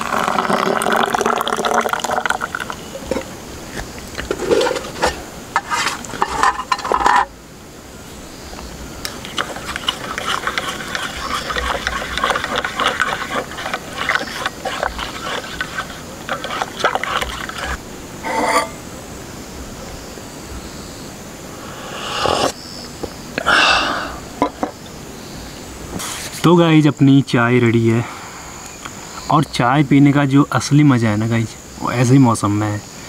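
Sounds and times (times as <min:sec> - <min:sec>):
spoon stirring in metal mug: 0:09.1 - 0:18.8.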